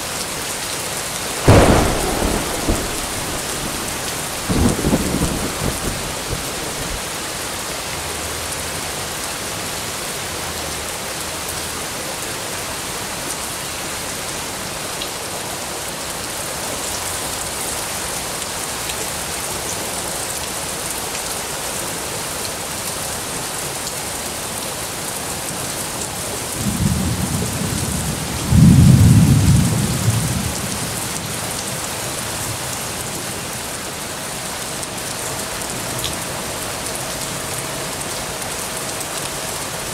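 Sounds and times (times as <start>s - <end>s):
heavy rain downpour: 0.0s - 39.9s
deep rumble of thunder: 1.4s - 7.1s, 26.5s - 31.6s.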